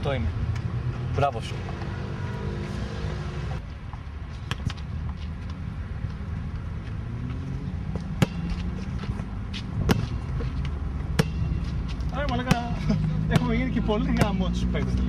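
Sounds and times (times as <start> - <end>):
sharp knocks: 8.1 - 8.8, 9.8 - 11.8.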